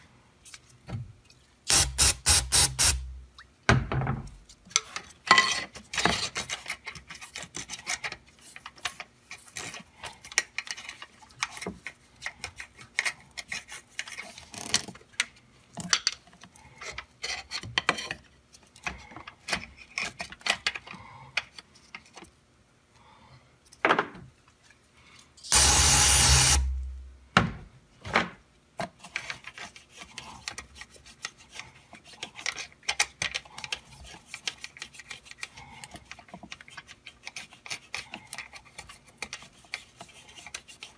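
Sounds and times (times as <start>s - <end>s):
loud hiss: 1.7s - 3.1s, 25.5s - 26.9s.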